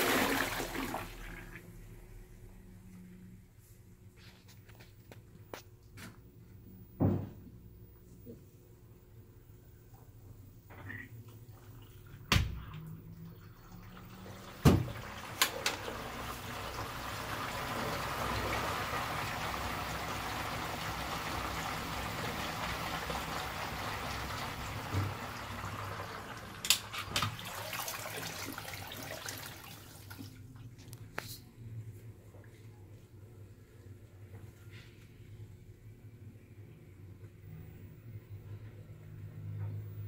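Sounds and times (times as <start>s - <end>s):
washing machine water sloshing: 0.0s - 1.8s, 11.4s - 30.8s.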